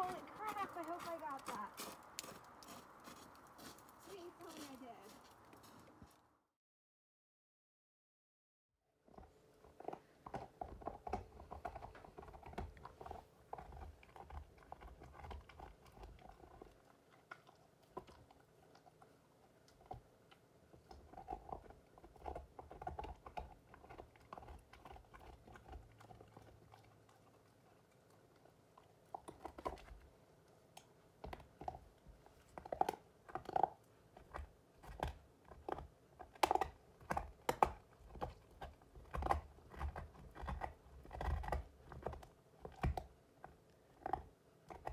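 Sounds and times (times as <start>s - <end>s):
dog gnawing on a bone: 0.0s - 5.8s, 9.1s - 44.9s.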